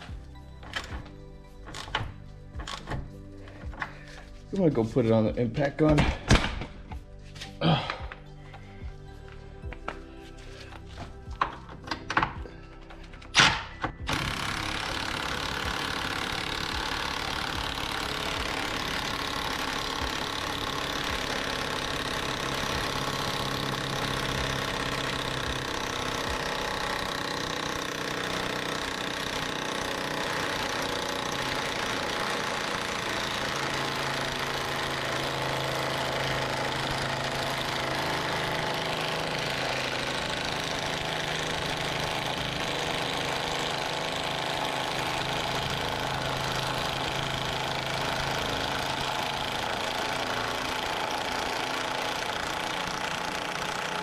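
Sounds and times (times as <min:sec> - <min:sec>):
impact wrench hammering: 0:13.3 - 0:54.0.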